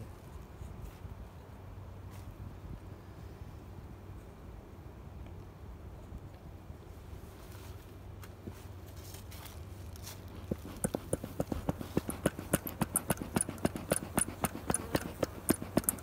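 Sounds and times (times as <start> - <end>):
bee smoker clicks and puffs: 10.2 - 16.0.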